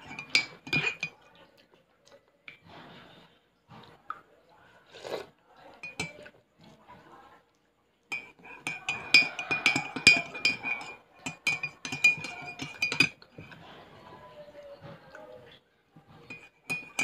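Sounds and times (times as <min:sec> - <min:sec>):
spoon clinking in ceramic mug: 0:00.0 - 0:01.2, 0:05.8 - 0:06.3, 0:08.1 - 0:13.6, 0:16.2 - 0:17.0.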